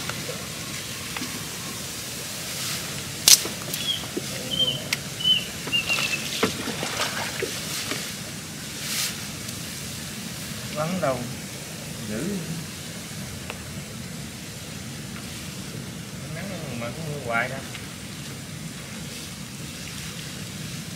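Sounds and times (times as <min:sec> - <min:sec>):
water sloshing around a boat: 0:00.0 - 0:09.4, 0:15.1 - 0:20.9.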